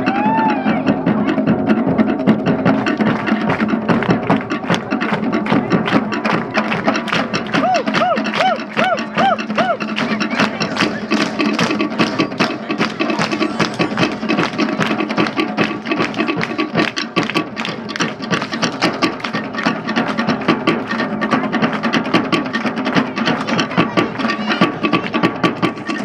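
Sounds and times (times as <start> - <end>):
fast drumming: 0.0 - 26.0.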